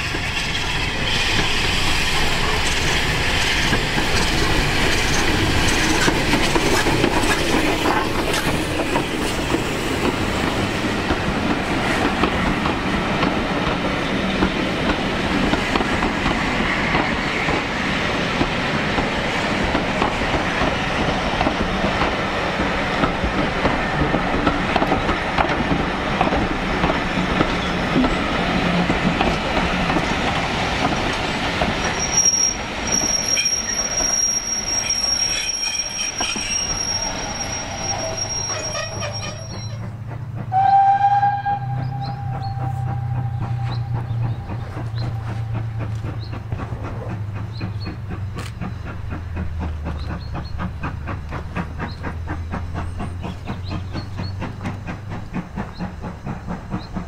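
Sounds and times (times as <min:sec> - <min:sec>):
train wheels clattering over rail joints: 0:00.0 - 0:40.9, 0:41.9 - 0:57.0
high wheel squeal: 0:31.8 - 0:39.9, 0:40.5 - 0:47.0
steam engine exhaust beats: 0:36.4 - 0:57.0
steam locomotive whistle: 0:40.5 - 0:46.1.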